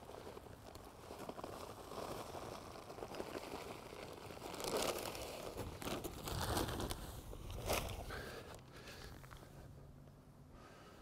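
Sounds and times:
plastic sack rustling and crinkling: 0:00.0 - 0:08.3.

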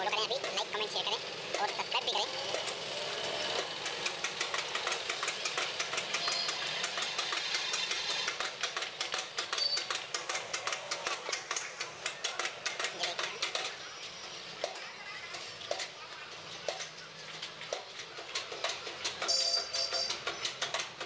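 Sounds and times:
hydraulic press knocking: 0:02.4 - 0:13.8.

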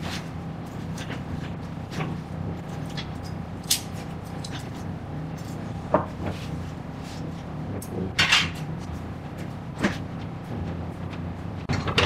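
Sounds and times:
low kitchen hum: 0:00.0 - 0:12.0.

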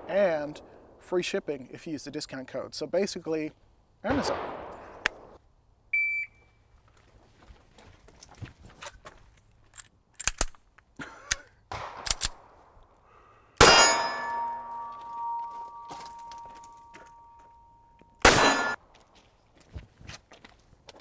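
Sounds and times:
shot timer beep: 0:06.0 - 0:06.4
handgun shots: 0:13.6 - 0:15.3, 0:18.2 - 0:18.8
steel plate ringing: 0:13.6 - 0:18.8.

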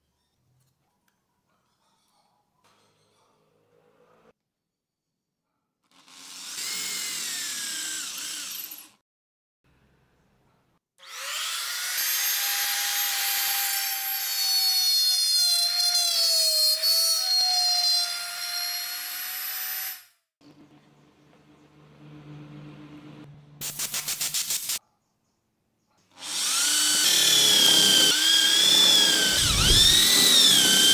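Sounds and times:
power drill drilling into wood: 0:05.9 - 0:08.9, 0:11.0 - 0:20.1, 0:26.2 - 0:30.9
trim router whining: 0:26.1 - 0:30.9.

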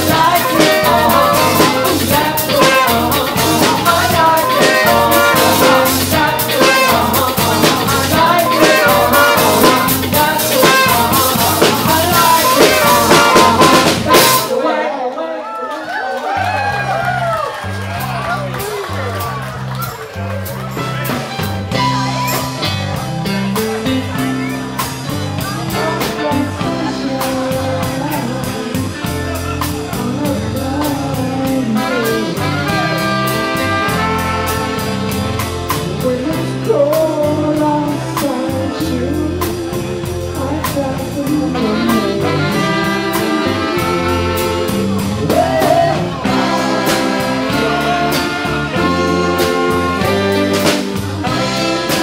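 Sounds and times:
bass: 0:00.0 - 0:14.6, 0:16.2 - 0:52.0
drum kit beat: 0:00.0 - 0:14.6, 0:20.4 - 0:52.0
electric guitar: 0:00.0 - 0:14.6, 0:16.7 - 0:52.0
trumpet horn lines: 0:00.0 - 0:14.7, 0:31.7 - 0:35.7, 0:41.6 - 0:52.0
keyboard: 0:00.0 - 0:15.0, 0:17.6 - 0:52.0
female singer: 0:00.0 - 0:15.4, 0:25.5 - 0:29.2, 0:29.8 - 0:52.0.

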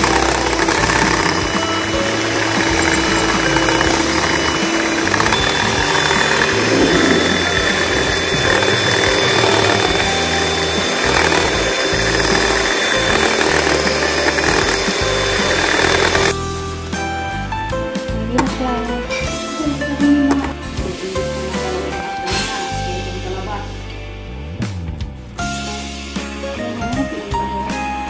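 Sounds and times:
electric hand mixer running: 0:00.0 - 0:16.4.

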